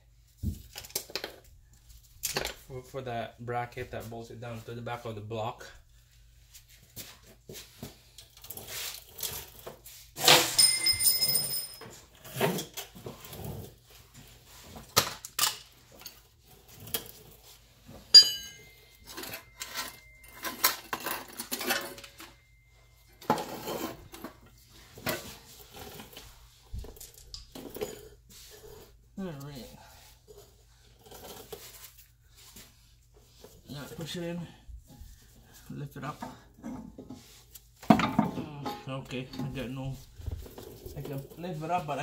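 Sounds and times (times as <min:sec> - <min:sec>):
metal tools clinking: 0:10.2 - 0:12.1, 0:18.1 - 0:24.5
ringing metal strikes: 0:18.1 - 0:20.7.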